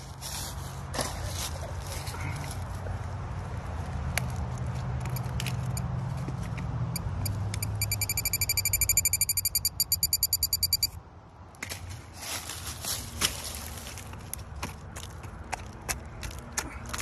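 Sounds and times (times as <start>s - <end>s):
pinpointer beeping rapidly: 7.0s - 11.0s.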